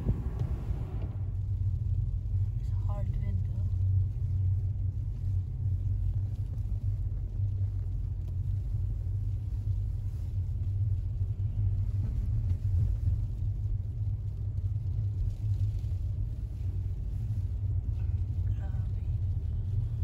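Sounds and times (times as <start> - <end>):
car interior road and engine rumble: 0.0 - 20.0.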